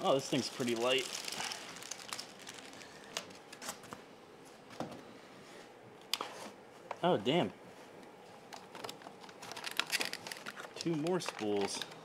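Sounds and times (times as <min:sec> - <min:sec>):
plastic bag rustling: 0:00.0 - 0:03.9, 0:09.3 - 0:11.9.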